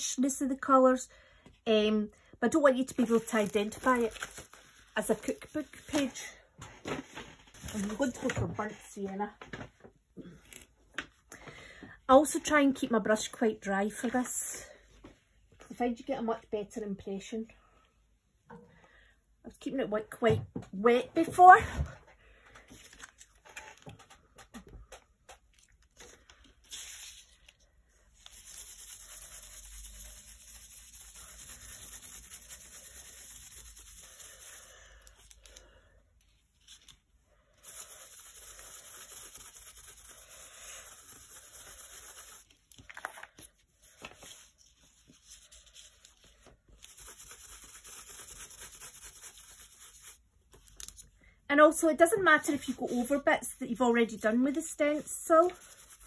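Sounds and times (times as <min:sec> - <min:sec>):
paintbrush rubbing on paper: 0:02.8 - 0:06.2, 0:28.2 - 0:34.8, 0:37.6 - 0:42.6, 0:43.8 - 0:50.2, 0:52.4 - 0:56.0.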